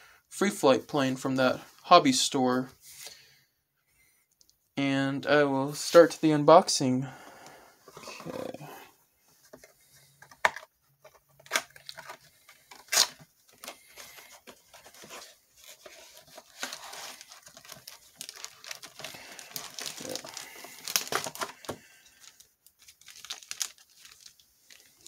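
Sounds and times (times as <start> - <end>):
packaging tearing and crinkling: 11.4 - 14.1, 14.7 - 25.0.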